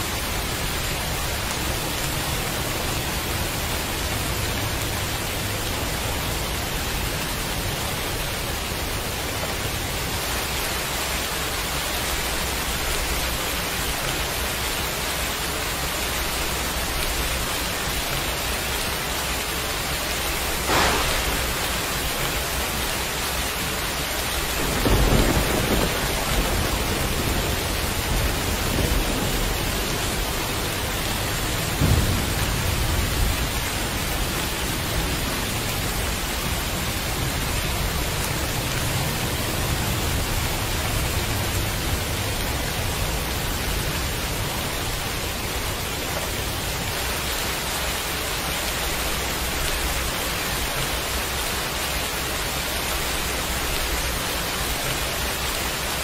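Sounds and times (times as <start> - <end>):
heavy rain: 0.0 - 56.0
low rolling thunder: 20.2 - 46.9
sharp thunder crack: 20.4 - 22.9, 24.6 - 30.3, 31.6 - 34.3.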